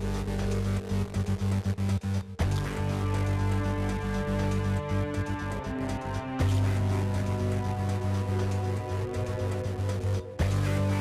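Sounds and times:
electronic music with low tones: 0:00.0 - 0:11.0.

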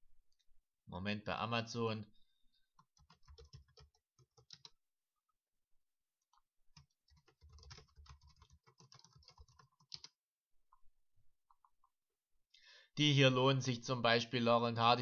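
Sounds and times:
typing on computer keyboard: 0:02.8 - 0:04.8, 0:06.3 - 0:10.2.

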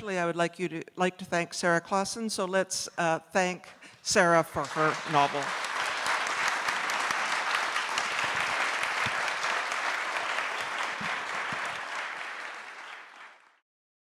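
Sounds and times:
audience applauding: 0:04.6 - 0:13.6.

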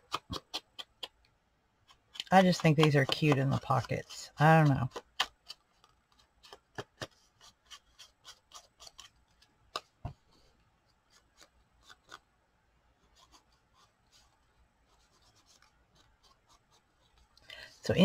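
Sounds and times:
small clicks and taps: 0:04.6 - 0:07.2.

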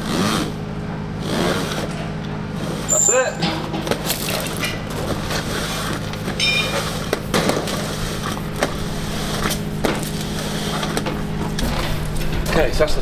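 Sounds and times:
steady low hum: 0:00.0 - 0:13.0
brief squeak: 0:02.9 - 0:03.4.

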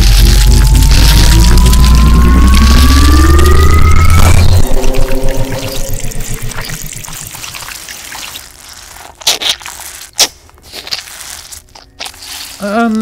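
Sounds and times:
sharp wet splats: 0:07.3 - 0:12.6
wet flesh tearing: 0:07.4 - 0:13.0.

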